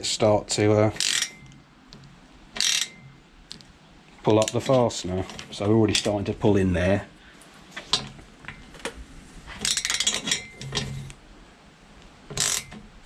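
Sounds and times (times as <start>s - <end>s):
metal tools clinking: 1.0s - 1.6s, 2.6s - 3.2s, 9.6s - 11.1s.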